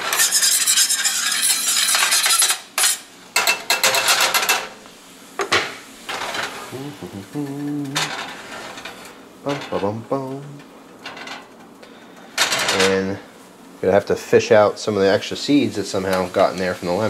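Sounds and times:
metal tongs scraping a skillet: 0.0 - 3.0.

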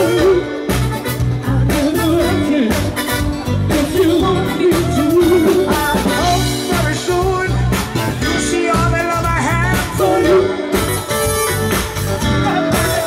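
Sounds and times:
live band playing dance music: 0.0 - 13.0.

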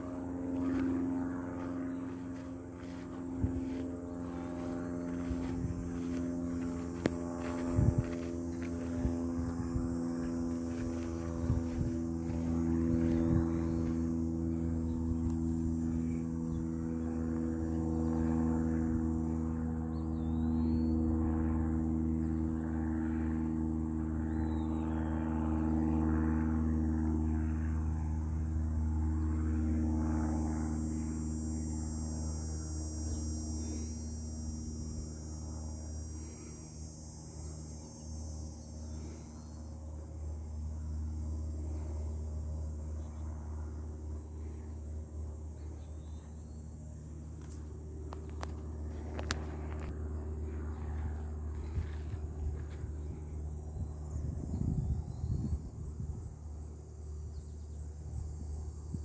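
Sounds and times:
low steady rumble: 0.0 - 21.6
insects trilling: 0.0 - 59.0.

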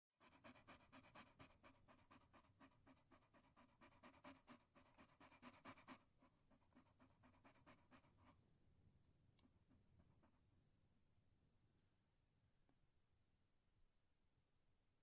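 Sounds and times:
dog panting: 0.2 - 8.5, 9.4 - 10.4.

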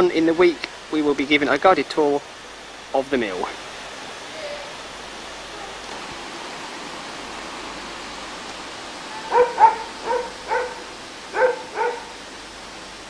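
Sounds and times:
steady hiss: 0.0 - 13.0
dog barking: 9.1 - 12.2.

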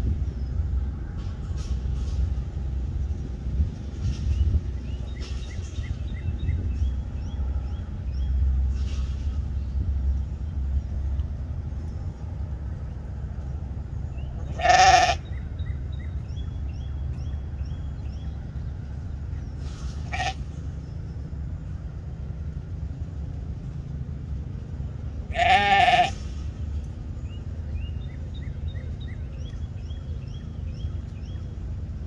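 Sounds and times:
sheep bleating: 14.5 - 15.2, 20.0 - 20.4, 25.3 - 26.2
bird chirps: 27.2 - 31.6.

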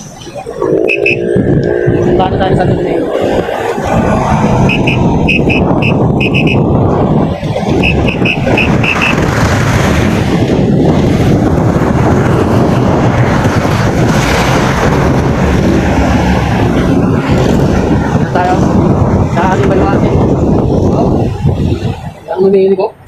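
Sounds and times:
short high electronic beeps: 0.0 - 1.3
city traffic: 0.0 - 23.0
wind buffeting microphone: 0.0 - 23.0.

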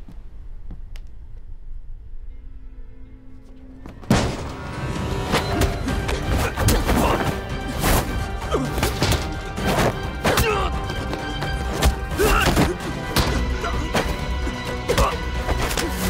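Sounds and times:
dramatic background music: 2.3 - 16.0.

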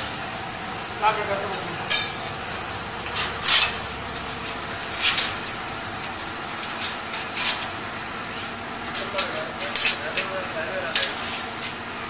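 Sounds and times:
steady background noise: 0.0 - 12.0.

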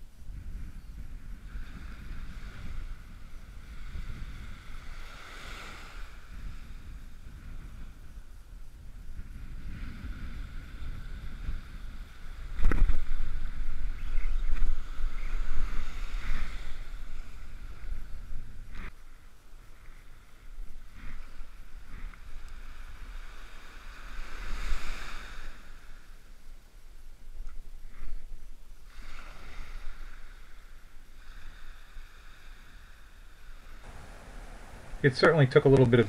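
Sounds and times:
wind buffeting microphone: 0.0 - 25.8, 33.6 - 36.0
small surf breaking on sand: 1.4 - 8.0, 9.3 - 19.0, 19.8 - 26.3, 28.9 - 36.0.

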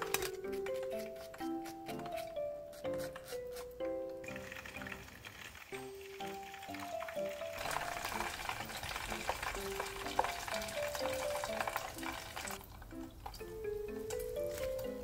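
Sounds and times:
light background music: 0.0 - 15.0
chicken deep-frying in oil: 4.2 - 15.0.

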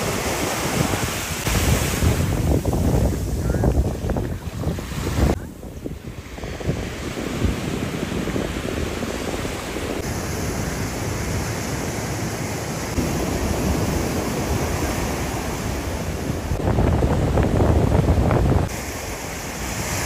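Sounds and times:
surf washing onto beach: 0.0 - 20.0
wind buffeting microphone: 0.0 - 20.0.

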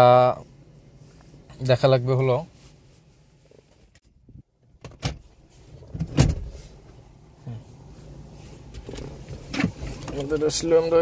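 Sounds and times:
knocks and thumps in car cabin: 4.6 - 6.6, 8.7 - 10.5.

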